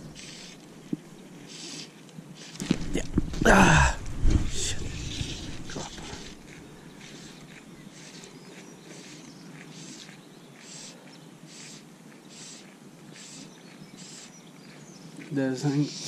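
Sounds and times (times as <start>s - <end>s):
fly line swishing through rod guides: 4.4s - 14.3s.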